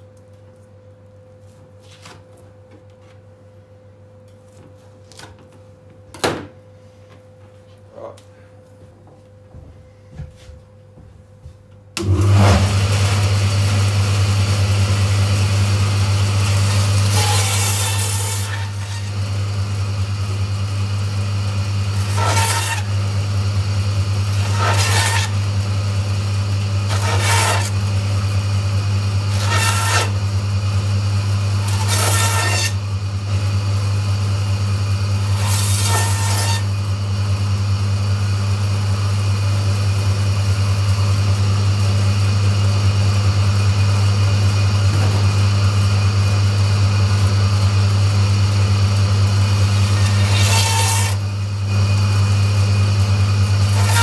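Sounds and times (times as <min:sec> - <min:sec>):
bandsaw motor hum: 0:12.0 - 0:54.0
saw blade rasping through bone: 0:22.0 - 0:22.9, 0:24.4 - 0:25.4, 0:26.9 - 0:27.8, 0:29.3 - 0:30.2.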